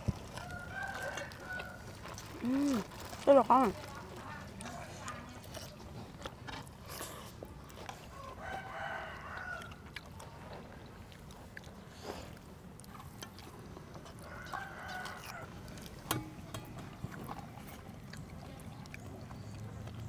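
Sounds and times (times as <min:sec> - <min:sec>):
rooster crowing: 0:00.4 - 0:01.9, 0:08.1 - 0:09.8, 0:14.2 - 0:15.5.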